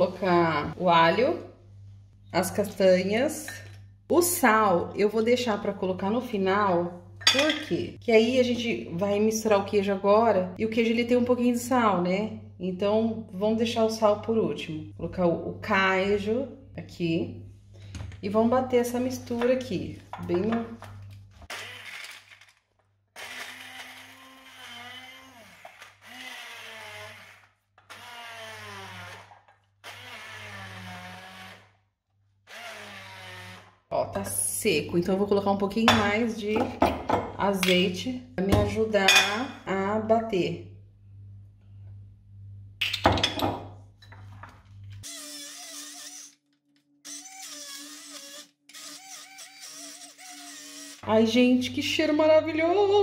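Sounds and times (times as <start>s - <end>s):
stick blender motor pulsing: 21.5s - 22.4s, 23.2s - 31.8s, 32.5s - 33.8s, 45.0s - 46.4s, 47.1s - 51.0s.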